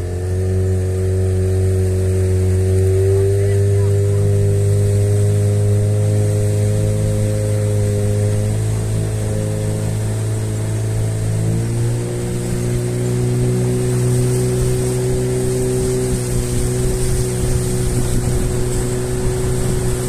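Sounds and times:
boat motor running: 0:00.0 - 0:20.0.

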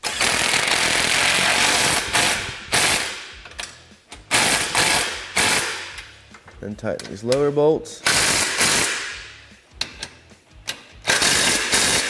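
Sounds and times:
cordless impact wrench hammering: 0:11.1 - 0:12.0.

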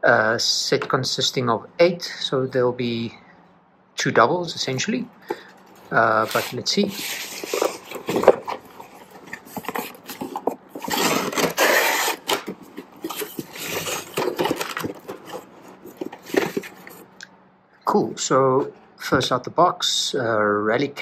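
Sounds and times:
plastic packs rubbing together: 0:05.8 - 0:17.1
cardboard flaps scraping and rustling: 0:05.9 - 0:17.1.

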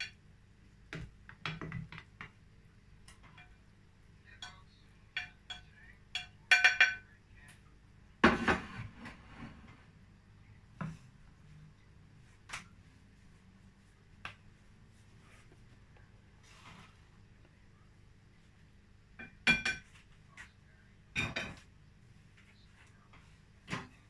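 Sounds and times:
clatter of dishes: 0:05.2 - 0:07.0, 0:08.2 - 0:09.5, 0:21.2 - 0:21.7.

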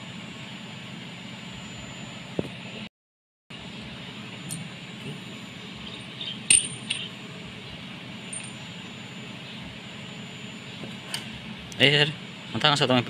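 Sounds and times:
steady low hum: 0:03.5 - 0:13.0
metal engine parts clinking: 0:05.9 - 0:07.2, 0:08.3 - 0:08.6.

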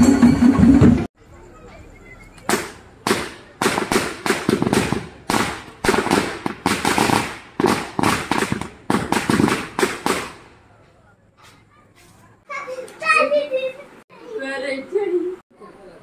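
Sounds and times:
firecrackers banging: 0:02.4 - 0:11.0.

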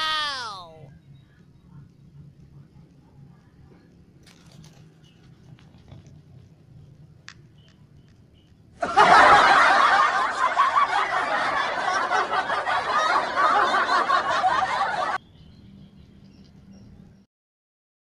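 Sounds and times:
people laughing and chuckling: 0:08.8 - 0:15.2.

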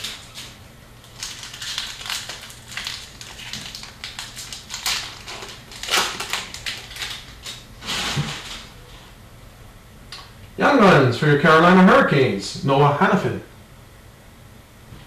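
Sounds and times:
trading cards crinkling: 0:00.0 - 0:07.6.

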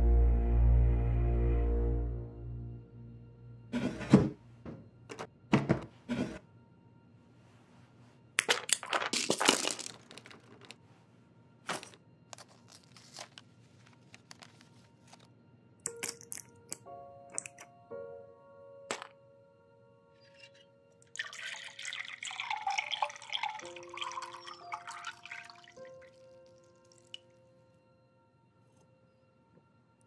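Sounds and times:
pills clicking: 0:08.4 - 0:10.8, 0:11.7 - 0:14.7, 0:15.9 - 0:17.6
foil crinkling and cracking: 0:11.7 - 0:14.7.

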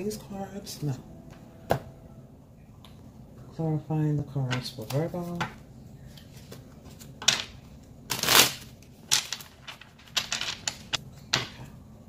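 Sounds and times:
cards being shuffled: 0:06.1 - 0:11.0.

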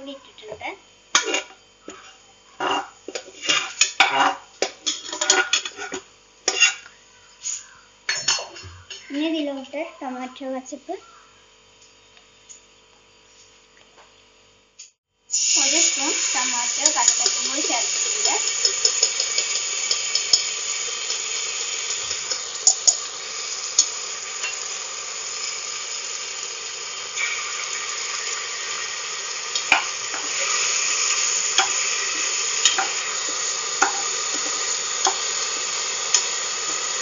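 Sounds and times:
oil sizzling in a pot: 0:00.9 - 0:09.4, 0:15.2 - 0:37.0
metal spoon stirring: 0:01.2 - 0:06.8, 0:15.8 - 0:24.8, 0:32.6 - 0:33.2.

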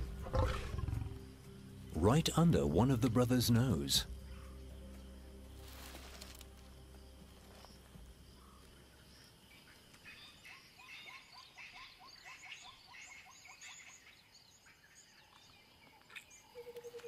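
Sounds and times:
birds calling: 0:07.3 - 0:17.0.

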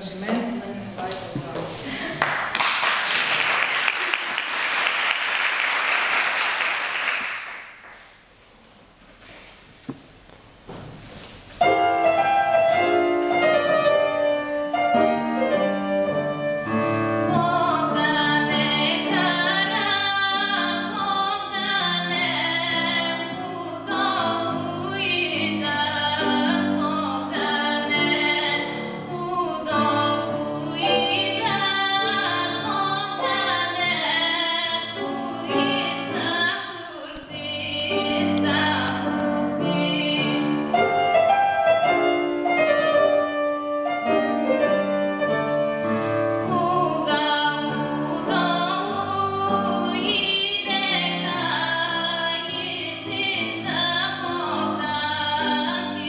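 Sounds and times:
grand piano accompaniment: 0:10.8 - 0:56.0
woman singing: 0:17.3 - 0:40.8, 0:46.4 - 0:56.0.

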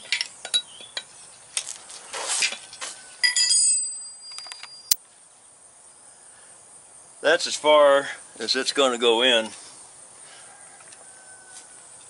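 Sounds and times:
wrench clinking on concrete: 0:00.0 - 0:01.4, 0:02.5 - 0:05.0.

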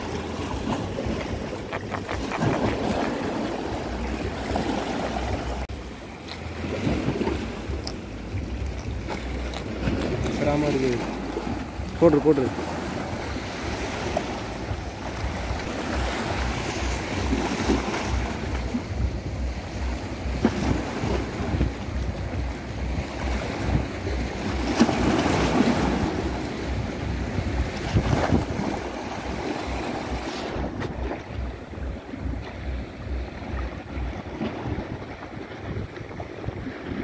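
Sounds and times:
sea waves washing: 0:00.0 - 0:37.0
wind buffeting microphone: 0:06.7 - 0:37.0.

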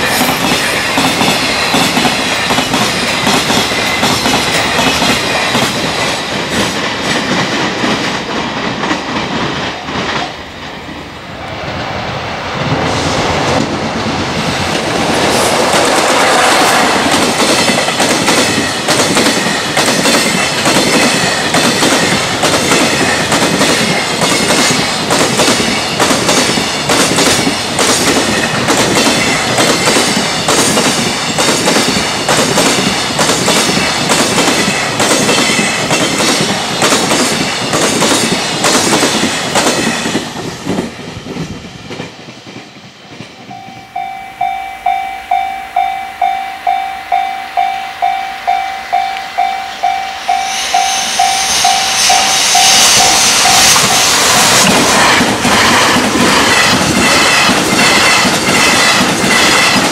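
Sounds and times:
train wheels clattering over rail joints: 0:00.0 - 0:10.2, 0:13.4 - 0:43.4, 0:52.6 - 0:59.9
level crossing alarm bell: 0:43.5 - 0:54.1.

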